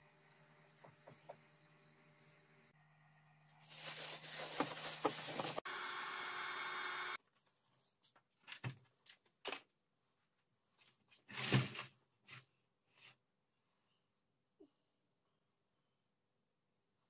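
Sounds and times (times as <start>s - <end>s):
plastic bag rustling: 3.6s - 5.6s.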